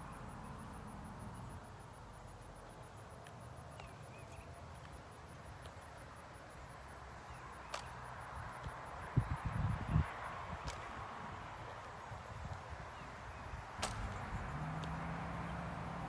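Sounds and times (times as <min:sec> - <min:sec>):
insect chirping: 0:00.0 - 0:16.0
faint bird chirp: 0:03.7 - 0:04.6
faint wind rumble: 0:05.0 - 0:16.0.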